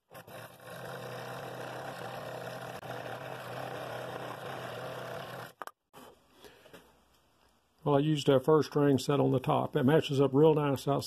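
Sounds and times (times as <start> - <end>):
scroll saw cutting wood: 0.0 - 5.7.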